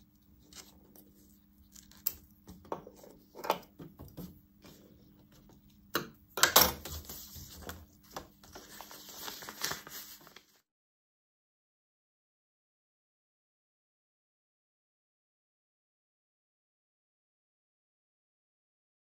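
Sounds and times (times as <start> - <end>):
faint steady hum: 0.0 - 10.6.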